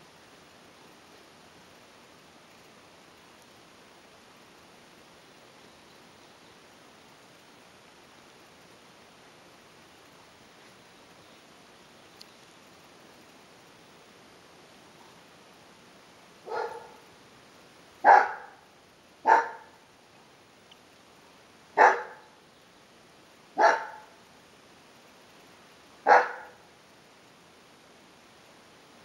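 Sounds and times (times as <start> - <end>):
dogs barking: 16.4 - 17.0, 18.0 - 18.6, 19.2 - 19.8, 21.8 - 22.3, 23.6 - 24.2, 26.0 - 26.6.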